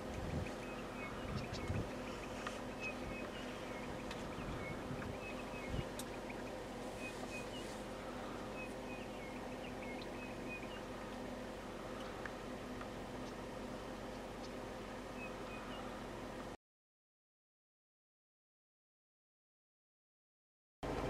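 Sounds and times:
small birds chirping: 0.0s - 16.6s
steady low hum: 0.0s - 16.6s.

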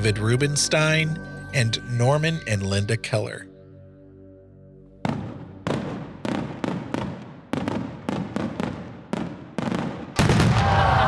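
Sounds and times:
fireworks bangs: 5.0s - 11.0s.

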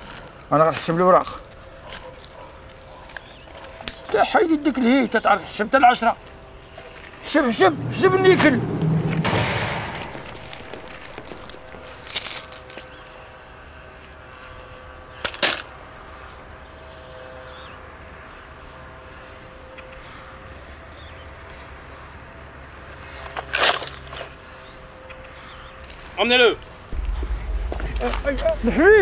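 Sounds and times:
low steady hum: 26.9s - 29.0s.

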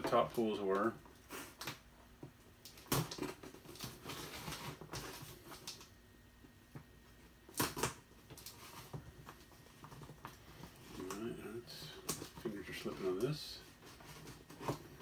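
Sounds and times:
packaging rustling and clicking: 2.6s - 6.0s, 7.5s - 15.0s.

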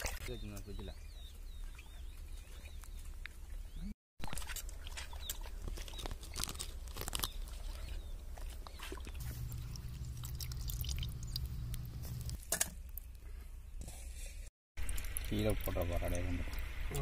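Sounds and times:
intestine squelching in water: 4.2s - 12.4s.

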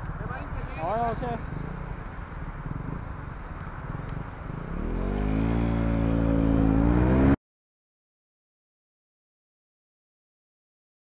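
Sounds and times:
vehicle engine idling and revving: 0.0s - 7.4s.

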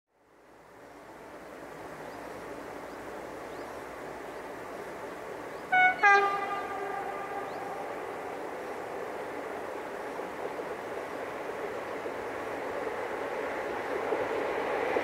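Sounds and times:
approaching freight train: 0.1s - 15.0s
train horn blasts: 5.7s - 8.3s.

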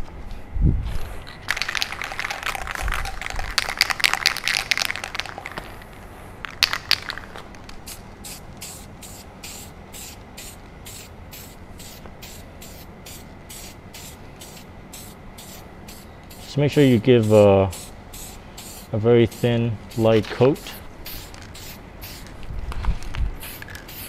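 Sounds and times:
aerosol can spraying: 20.6s - 22.3s, 23.4s - 24.0s.

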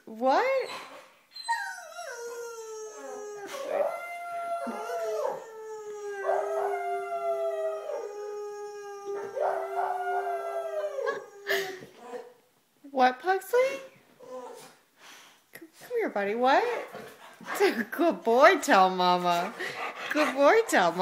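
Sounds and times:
dog howling: 1.8s - 11.5s.

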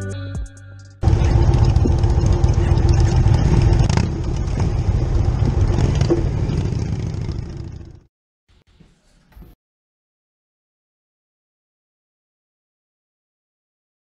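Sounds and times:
motorcycle engine running: 1.0s - 8.1s.

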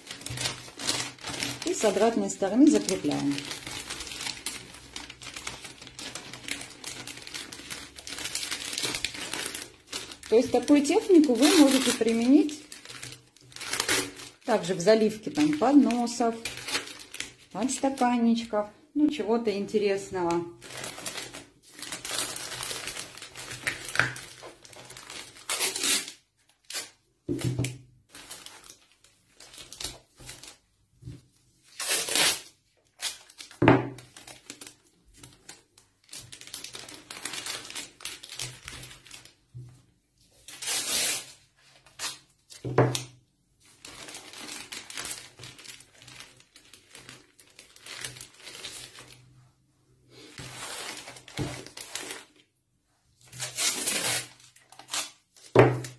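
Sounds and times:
plastic film crinkling: 0.0s - 19.2s, 19.8s - 39.6s, 40.3s - 49.4s, 50.1s - 55.9s
masking tape ripping: 2.7s - 14.4s, 25.1s - 27.0s, 31.8s - 33.6s, 40.5s - 42.3s, 53.4s - 55.2s.

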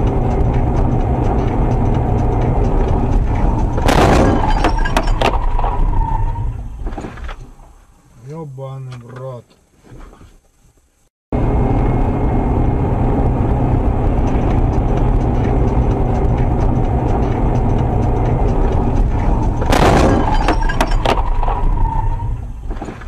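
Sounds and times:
road and engine noise inside car: 0.0s - 23.0s
loud crash: 3.1s - 7.7s, 18.9s - 23.0s
sharp cracks: 3.8s - 5.8s.

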